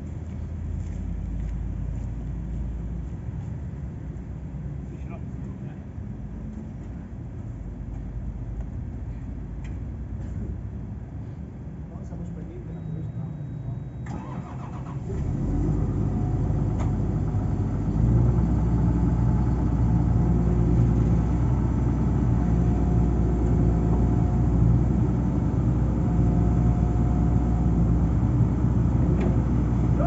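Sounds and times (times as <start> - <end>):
excavator diesel engine running: 12.7 - 30.0.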